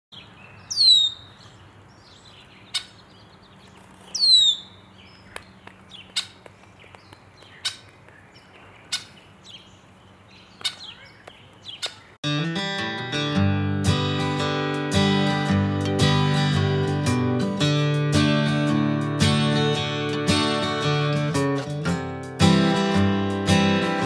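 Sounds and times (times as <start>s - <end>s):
bird whistled calls: 0.5s - 3.0s, 4.1s - 12.2s
short sharp bird call notes: 0.7s - 1.3s, 4.1s - 4.8s.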